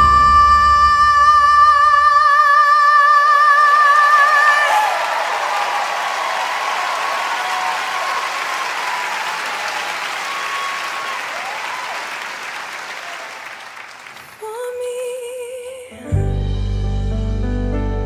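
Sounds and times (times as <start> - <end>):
crowd applauding: 4.0 - 14.5.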